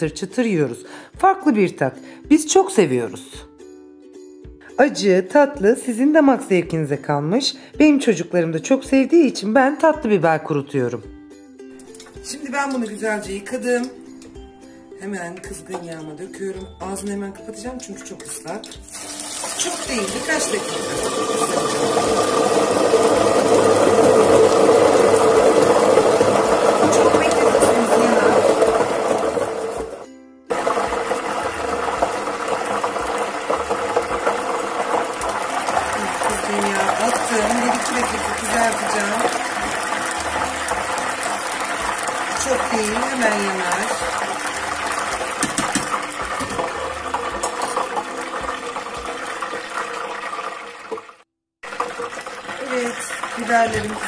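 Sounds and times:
peppers sizzling in hot oil: 11.7 - 14.8, 15.5 - 54.0.

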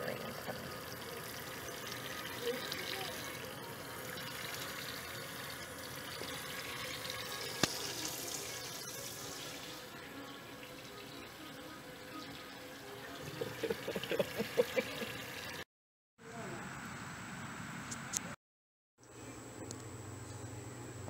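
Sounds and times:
faucet water splashing in sink: 0.0 - 9.9.

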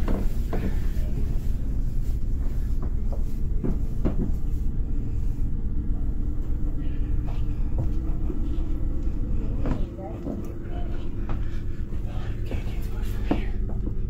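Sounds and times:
soft footstep knocks: 2.2 - 4.7, 12.4 - 14.0.

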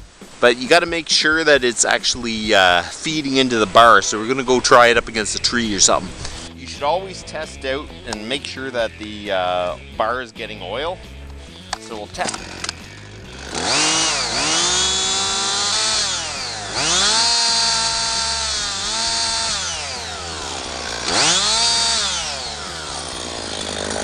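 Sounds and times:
chainsaw revving: 12.1 - 24.0.

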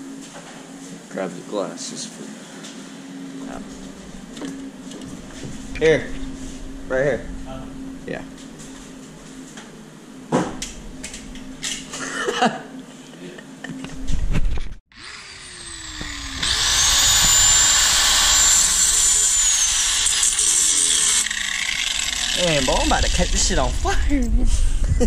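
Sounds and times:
angle grinder cutting steel: 14.9 - 23.7.

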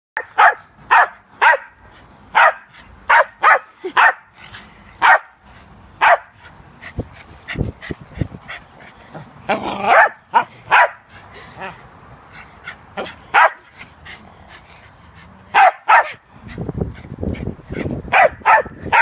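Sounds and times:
dog barking: 0.2 - 4.3, 5.0 - 5.4, 6.0 - 6.3, 9.9 - 11.0, 13.3 - 13.7, 15.5 - 16.2, 18.1 - 19.0.

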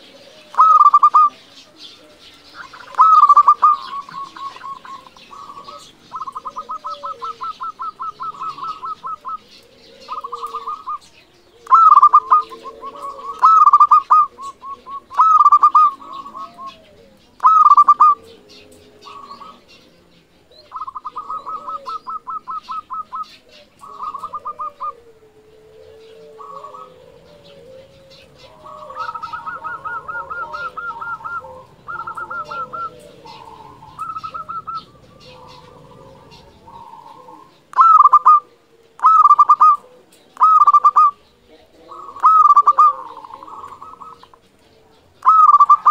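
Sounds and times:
dove cooing rapidly: 0.0 - 45.9
faint bird chirps: 0.0 - 45.9.

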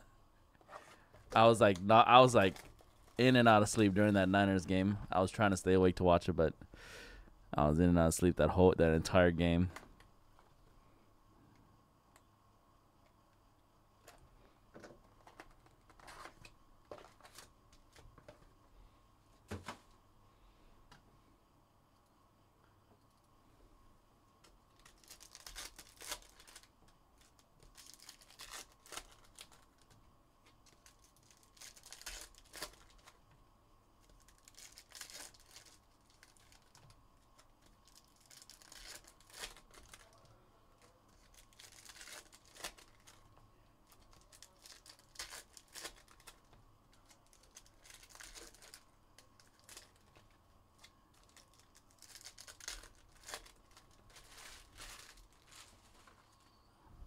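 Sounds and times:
clicks and rustles of handling: 14.0 - 18.6
wrappers tearing and crinkling: 24.7 - 30.0, 30.6 - 33.2, 34.0 - 43.2, 43.8 - 56.3.

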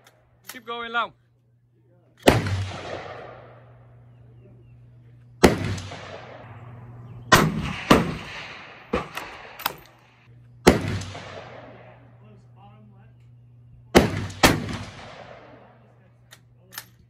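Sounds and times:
rifle shots echoing: 2.2 - 4.4, 5.3 - 12.4, 13.9 - 16.6.

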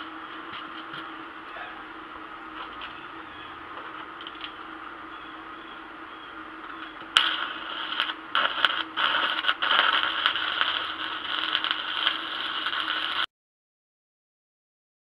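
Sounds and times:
arc welding crackling sizzle: 0.0 - 1.4, 2.0 - 13.3
low steady hum: 0.0 - 13.3.

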